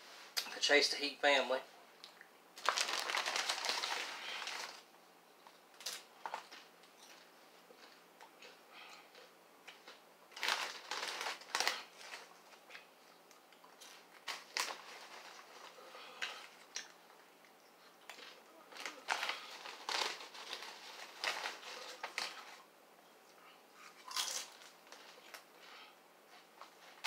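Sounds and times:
potato chips being chewed: 2.0s - 4.8s, 5.4s - 22.6s, 23.8s - 27.0s
chip bag crinkling: 2.6s - 4.9s, 5.7s - 12.9s, 13.6s - 17.0s, 18.0s - 22.6s, 24.0s - 25.5s.

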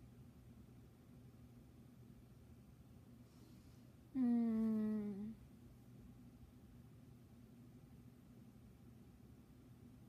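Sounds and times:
woman humming: 4.2s - 5.4s.

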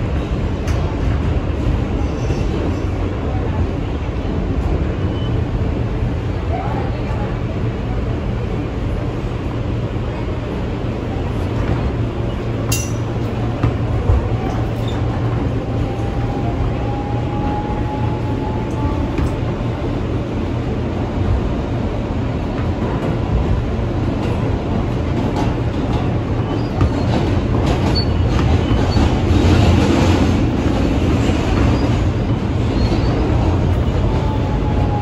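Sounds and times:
rail clicks: 0.0s - 3.0s
subway car rumble: 0.0s - 35.0s.

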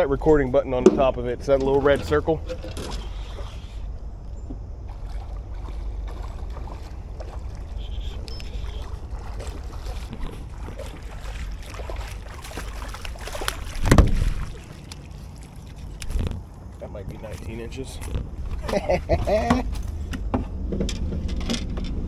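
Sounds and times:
steady low rumble: 0.0s - 22.0s
fish thrashing and splashing: 4.8s - 20.0s.

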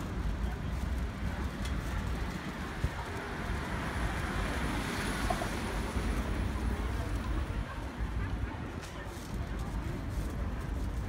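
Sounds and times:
passing car traffic: 0.0s - 11.0s
wind rumble on microphone: 0.0s - 11.0s.

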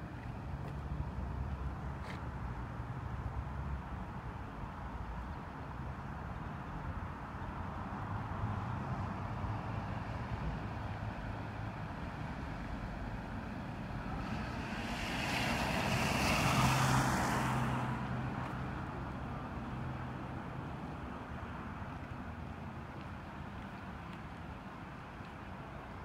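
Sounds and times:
low traffic rumble: 0.0s - 26.0s
car tyres hissing on wet street: 13.8s - 18.9s.

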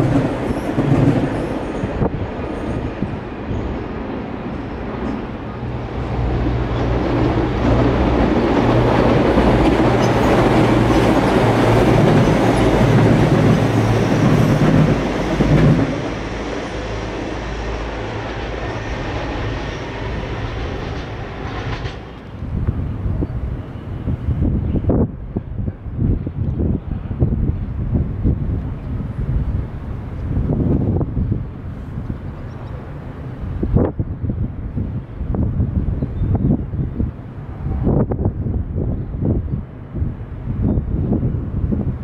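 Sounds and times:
train wheels clacking on rails: 0.0s - 3.7s, 4.5s - 22.4s
train engine drone: 0.0s - 42.0s.

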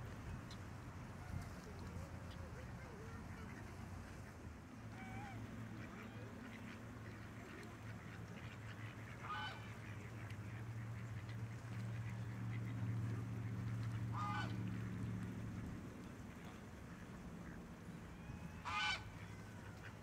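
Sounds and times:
waterfowl honking: 3.0s - 14.9s, 16.4s - 20.0s.

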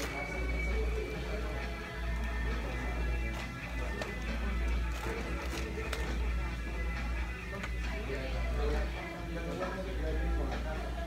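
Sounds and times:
plastic bag crackling: 0.0s - 0.7s, 2.0s - 6.5s
background music: 0.0s - 11.0s.

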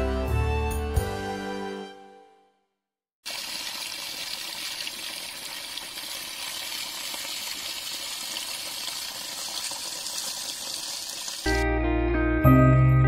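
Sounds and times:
water splashing onto stones: 3.2s - 11.6s.

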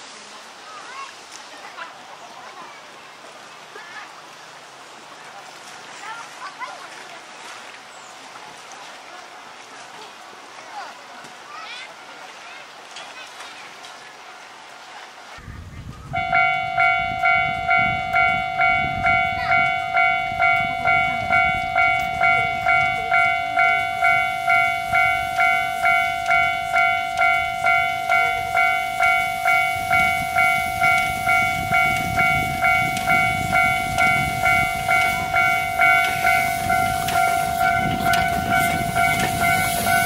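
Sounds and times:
steam locomotive rumble: 16.0s - 40.0s
level crossing bell ringing: 16.2s - 40.0s.

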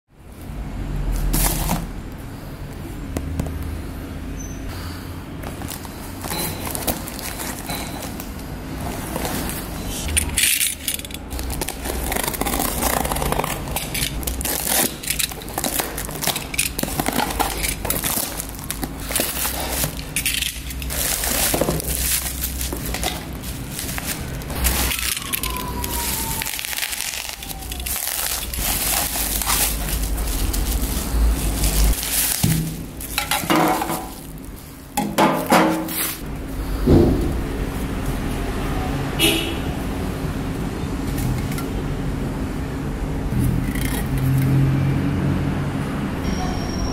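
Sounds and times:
bubble wrap crinkling: 5.4s - 35.0s, 35.7s - 36.3s
cardboard being torn open: 11.3s - 33.2s
metal cans clinking: 13.8s - 24.1s, 32.4s - 34.3s.

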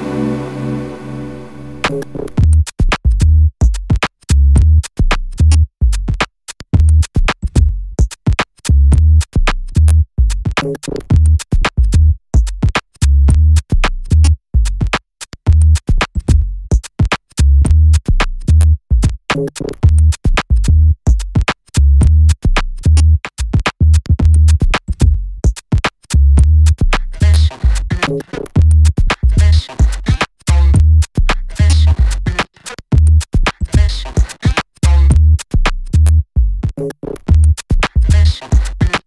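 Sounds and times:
chopped electronic music: 0.0s - 2.5s, 27.2s - 28.4s, 29.2s - 30.8s, 31.5s - 32.8s, 33.6s - 35.2s, 37.9s - 39.0s.

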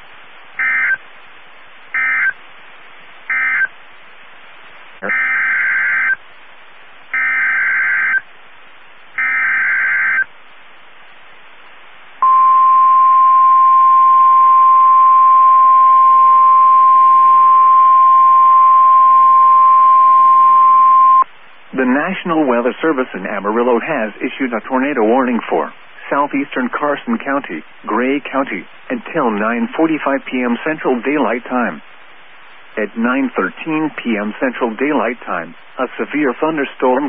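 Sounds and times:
faint radio hiss: 0.0s - 37.0s
steady warning alarm tone: 0.6s - 1.0s, 2.0s - 2.4s, 3.3s - 3.7s, 5.0s - 6.2s, 7.1s - 8.3s, 9.2s - 10.3s, 12.2s - 21.2s.

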